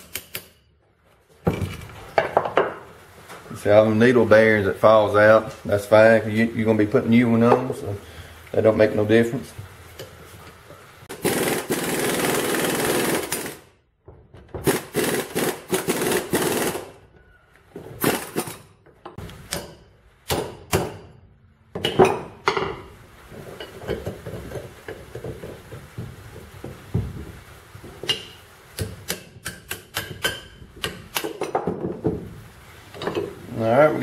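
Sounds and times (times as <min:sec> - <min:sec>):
impact wrench rattling: 0:11.1 - 0:16.9
sharp metal knocks: 0:19.5 - 0:22.8, 0:28.0 - 0:32.0.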